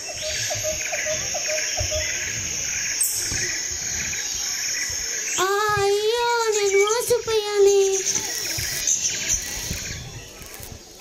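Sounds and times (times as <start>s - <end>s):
bird chirping rapidly: 0.0s - 10.4s
crickets trilling: 0.0s - 11.0s.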